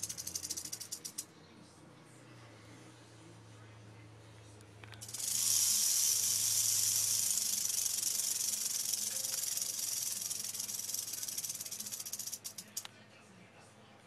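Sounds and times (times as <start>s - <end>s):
rattlesnake rattling: 0.0s - 1.2s, 5.0s - 12.8s.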